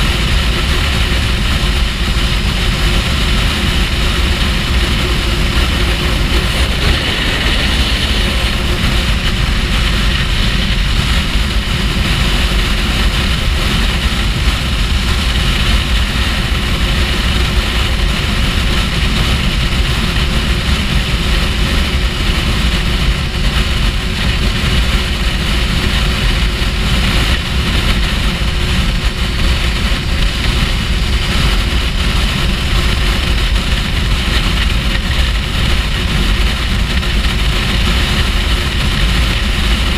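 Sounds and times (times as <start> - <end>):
motorcycle engine cruising: 0.0 - 39.9
road noise: 0.0 - 39.9
wind rush on microphone: 0.0 - 39.9.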